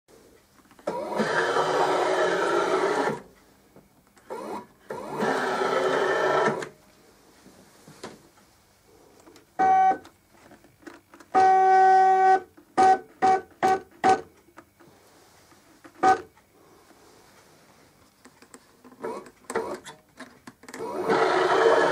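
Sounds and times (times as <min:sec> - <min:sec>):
printer motor whine: 0:00.8 - 0:03.3, 0:04.2 - 0:06.8, 0:11.3 - 0:14.4, 0:19.0 - 0:20.0, 0:20.7 - 0:21.9.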